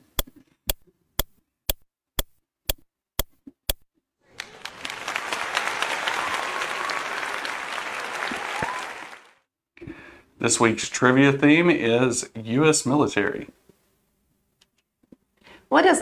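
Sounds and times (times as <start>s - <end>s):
clock ticking: 0.1s - 3.8s
crowd applauding: 4.2s - 9.5s.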